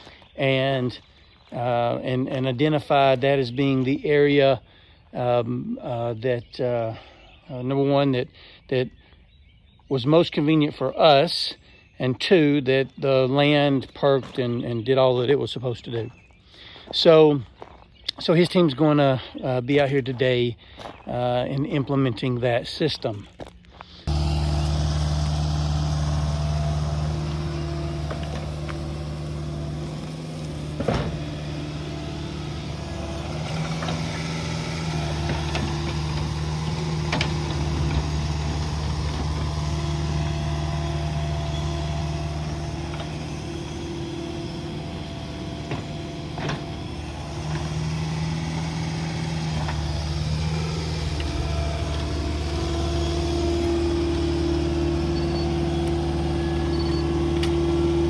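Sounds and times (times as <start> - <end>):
excavator diesel engine running: 24.0 - 58.0.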